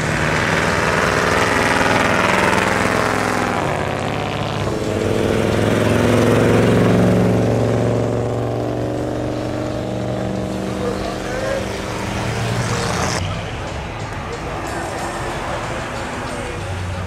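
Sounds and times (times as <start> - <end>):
car engine low hum: 0.0 - 13.2
car engines passing: 0.0 - 17.0.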